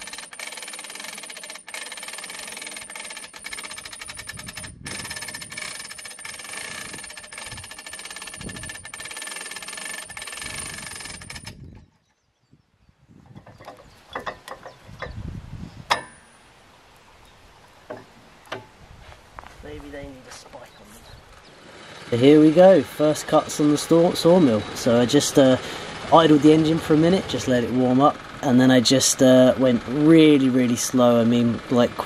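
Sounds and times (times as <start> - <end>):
hand winch ratcheting clicks: 0.0 - 12.2, 13.4 - 15.2, 15.9 - 16.4
log knocking on steel bed: 15.9 - 16.3, 17.8 - 18.8
sharp metal clank: 15.9 - 16.5.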